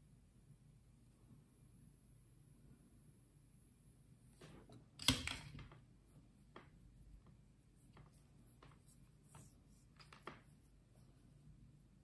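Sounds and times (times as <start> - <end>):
fingers handling thin wire: 5.0 - 11.6.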